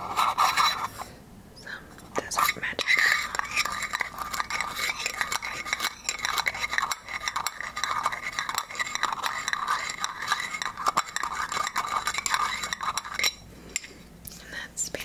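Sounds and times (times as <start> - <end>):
metal rings clinking and scraping: 2.8 - 13.9.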